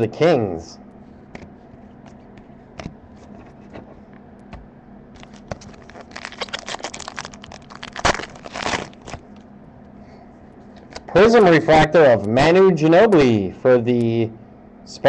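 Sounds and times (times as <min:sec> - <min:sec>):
faint steady hum: 0:00.0 - 0:15.0
foil wrapper crinkling: 0:05.2 - 0:09.4
foil wrapper tearing: 0:05.2 - 0:09.4.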